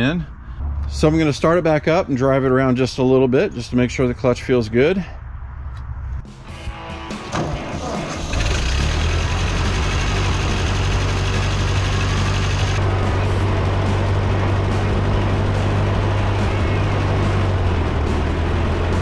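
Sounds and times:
tractor engine running: 7.2 - 19.0.

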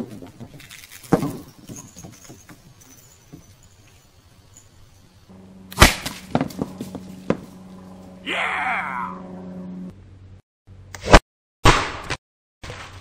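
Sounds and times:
steady low hum: 4.5 - 10.9
loud sharp impact: 5.7 - 7.5.

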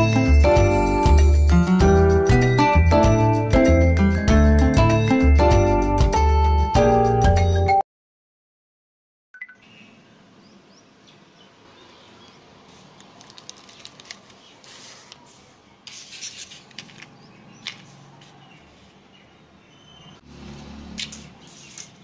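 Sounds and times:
hands rubbing and rustling: 12.7 - 18.4
plastic packaging crinkles and clicks: 12.8 - 15.3.

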